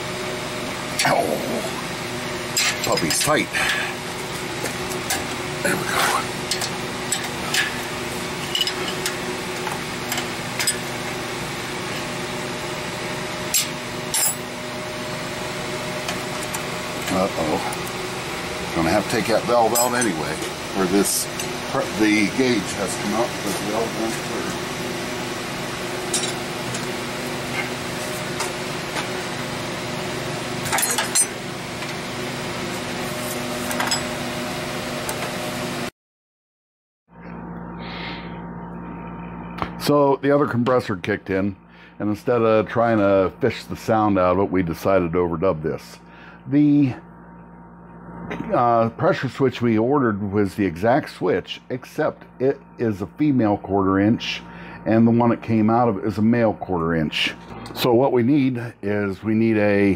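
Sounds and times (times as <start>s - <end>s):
steady machine hum: 0.0s - 35.9s, 37.1s - 59.9s
wrenches clinking on metal: 8.4s - 9.2s, 19.7s - 20.3s, 26.1s - 26.4s, 30.6s - 31.4s.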